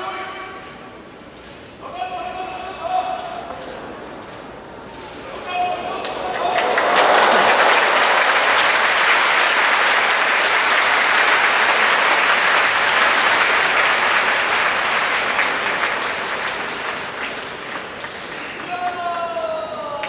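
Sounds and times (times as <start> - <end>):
audience applause: 3.5 - 19.5.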